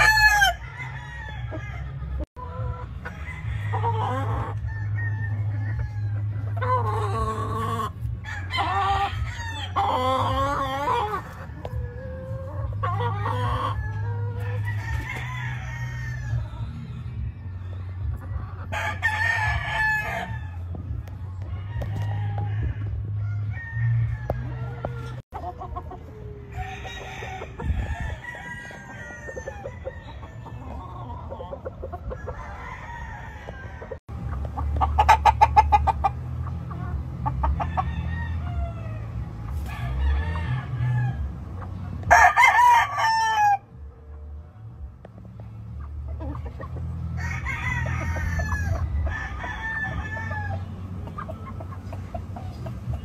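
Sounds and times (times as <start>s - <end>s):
roosters crowing: 0.0s - 44.4s, 46.0s - 53.0s
steady low rumble: 29.5s - 42.1s.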